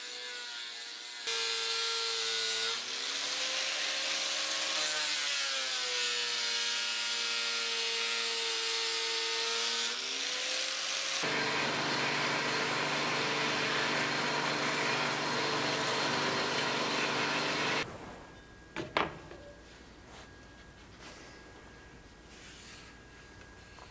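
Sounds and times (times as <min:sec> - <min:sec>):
angle grinder grinding wood: 0:00.0 - 0:17.9
belt grinder sanding wood: 0:10.0 - 0:17.8.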